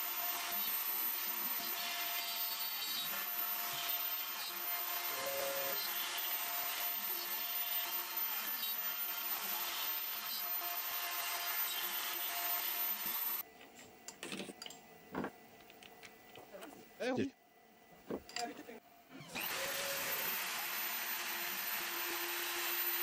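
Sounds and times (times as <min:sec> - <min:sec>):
router spindle milling wood: 0:19.1 - 0:23.0.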